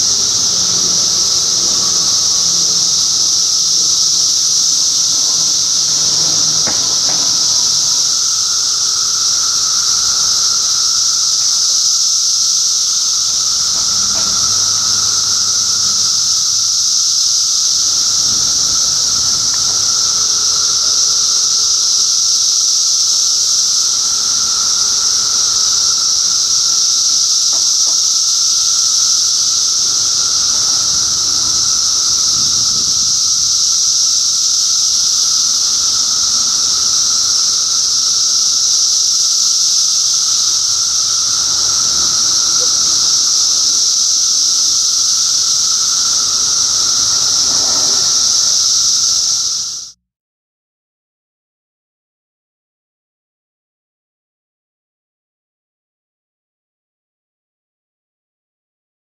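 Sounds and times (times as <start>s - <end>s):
cicadas chorus: 0.0s - 50.0s.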